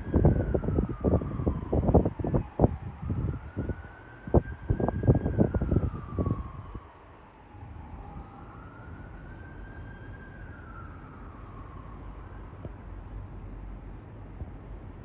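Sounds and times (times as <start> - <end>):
emergency vehicle siren wailing: 0.0 - 14.8
wind buffeting microphone: 0.0 - 15.0
steady low rumble: 7.6 - 15.0.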